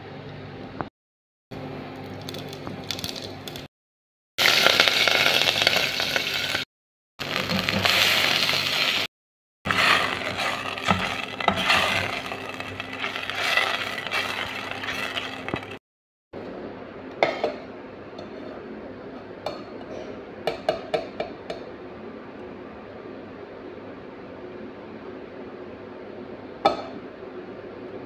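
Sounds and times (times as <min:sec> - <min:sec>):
metal ladle scraping a pot: 0:09.7 - 0:15.8.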